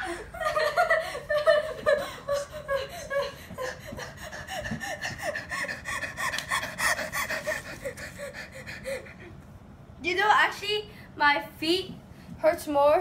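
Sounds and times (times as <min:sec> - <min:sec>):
person laughing breathily: 0:00.0 - 0:09.4.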